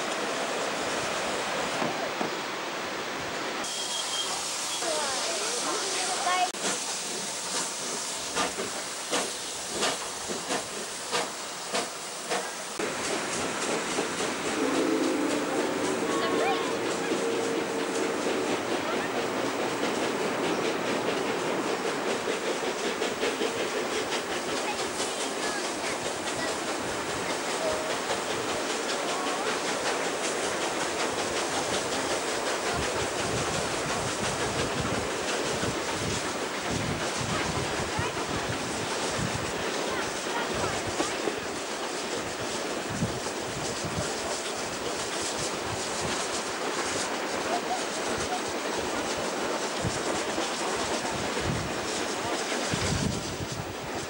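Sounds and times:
steam hissing: 0.0s - 54.0s
train running noise: 0.0s - 54.0s
steam locomotive chuffs: 3.6s - 54.0s
wind buffeting microphone: 32.7s - 39.6s, 51.0s - 54.0s.

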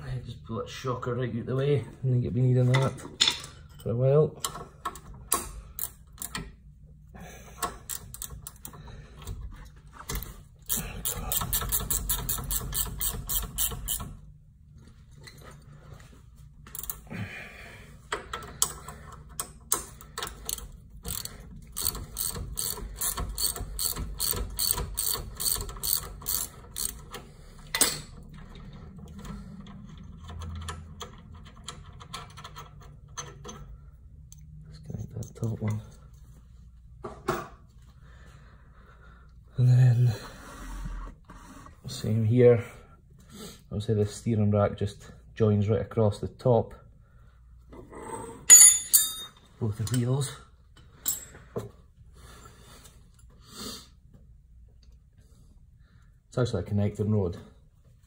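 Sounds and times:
ratchet wrench clicking: 10.6s - 14.1s, 19.4s - 27.2s.

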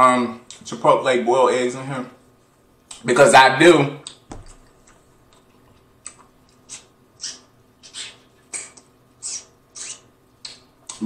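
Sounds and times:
wet mouth sucking and smacking: 6.0s - 11.0s.

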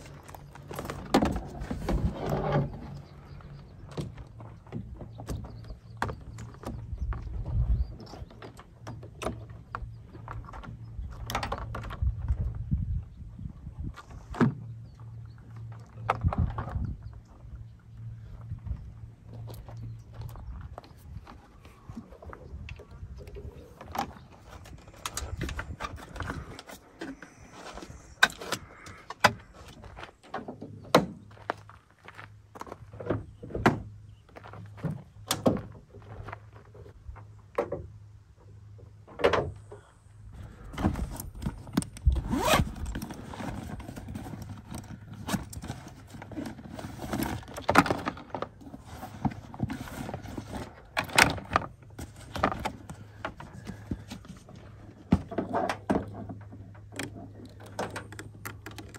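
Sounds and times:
cables pulled from zippered bag: 42.1s - 44.4s.

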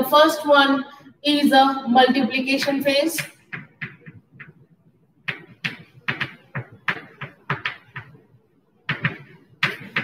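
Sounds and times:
chalk tapping and scraping on blackboard: 3.1s - 10.0s.

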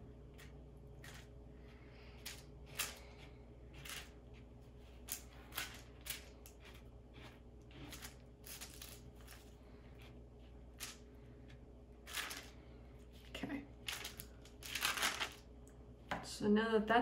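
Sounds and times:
spatula scraping on paper: 3.7s - 10.7s.

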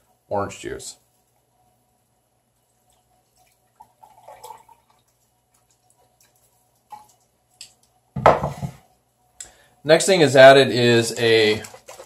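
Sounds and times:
juice trickling into a cup: 2.8s - 7.7s.

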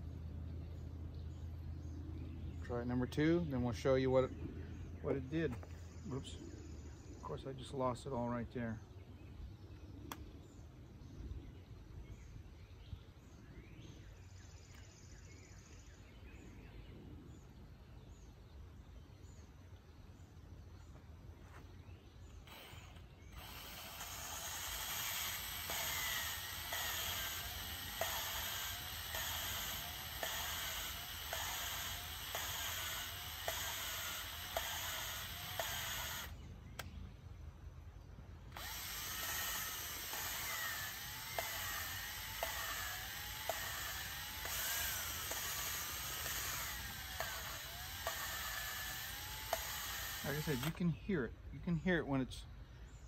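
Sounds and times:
drill whirring grind: 22.4s - 36.4s, 38.5s - 50.8s
regular ticking: 22.5s - 36.9s, 38.5s - 50.8s.

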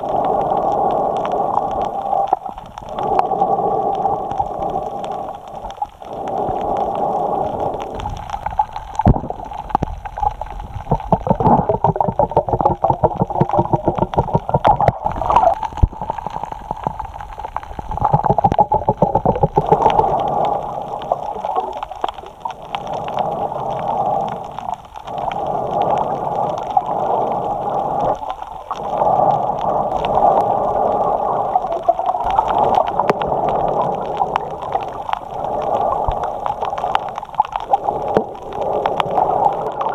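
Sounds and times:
breathing through snorkel: 0.0s - 8.4s, 19.6s - 21.3s, 22.8s - 31.8s
dense clicks: 0.0s - 39.9s.

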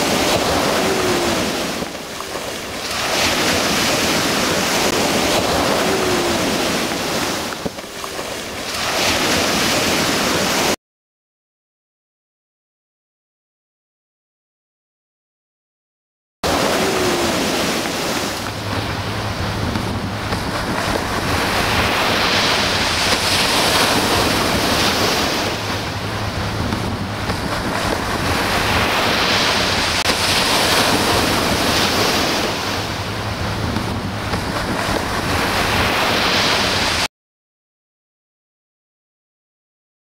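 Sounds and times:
wind rumbling on microphone: 0.0s - 10.7s, 16.5s - 37.1s
ocean surf breaking: 0.0s - 10.8s, 16.4s - 37.1s.

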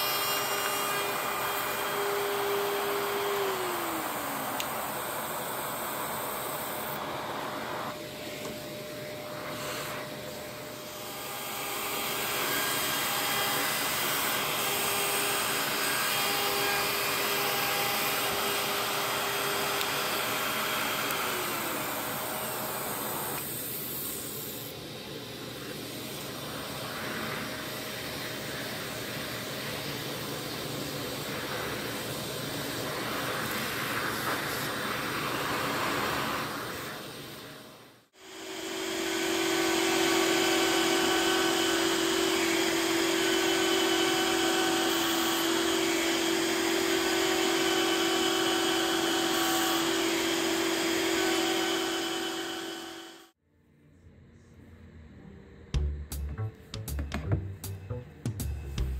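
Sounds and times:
router cutting wood: 0.0s - 23.5s, 38.2s - 53.4s
shop vacuum running: 0.0s - 53.4s.

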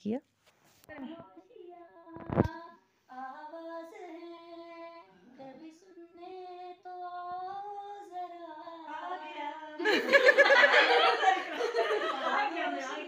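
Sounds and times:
woman singing: 0.9s - 9.8s.

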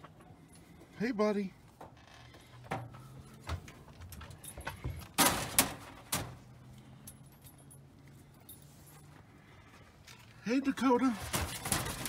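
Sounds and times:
metal crate door clanks: 5.1s - 6.4s, 11.2s - 12.0s.

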